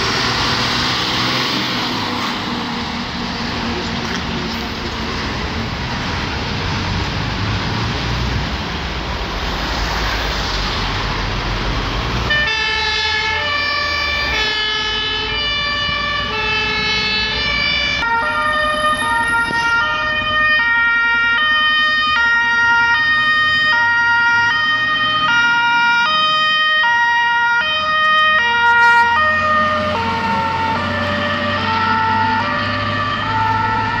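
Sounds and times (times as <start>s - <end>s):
road and engine noise: 0.0s - 34.0s
fire engine two-tone siren: 12.2s - 34.0s.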